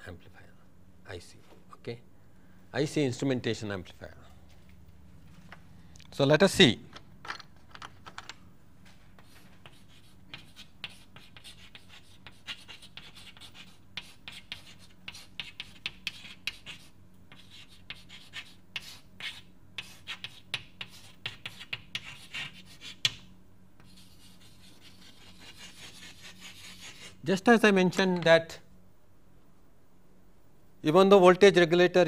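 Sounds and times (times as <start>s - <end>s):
faint low hum: 0.0s - 32.0s
pen scratching on writing surface: 9.2s - 23.1s, 23.8s - 27.1s.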